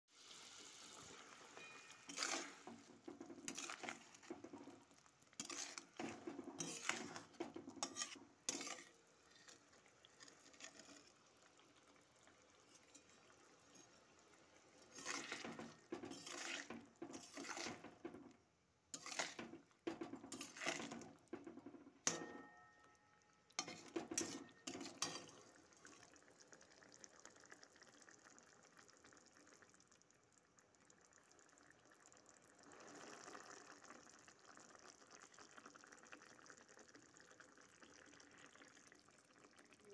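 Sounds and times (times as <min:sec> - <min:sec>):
metal spatula scraping a pan: 0:00.8 - 0:11.4, 0:12.5 - 0:22.9, 0:23.5 - 0:25.7.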